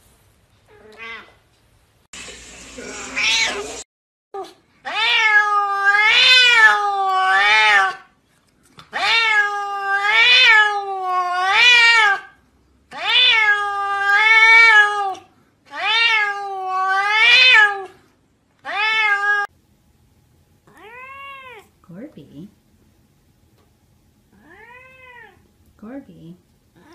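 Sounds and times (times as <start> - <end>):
cat meowing loudly: 0.7 - 1.4, 4.8 - 8.1, 8.9 - 12.3, 12.9 - 17.9, 18.6 - 19.5, 20.7 - 21.7, 24.4 - 25.4.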